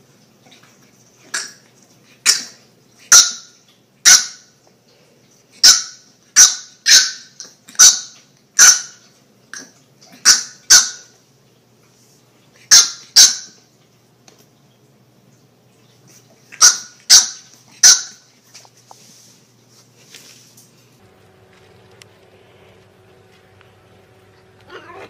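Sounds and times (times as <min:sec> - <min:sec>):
puppy yapping: 0:24.6 - 0:25.0.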